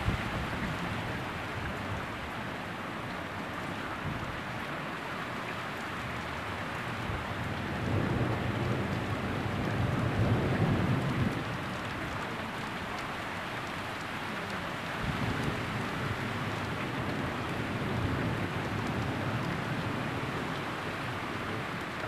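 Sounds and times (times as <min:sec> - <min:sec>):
heavy rain falling: 0:00.0 - 0:22.0
low rumble of thunder: 0:07.0 - 0:12.7, 0:14.9 - 0:22.0.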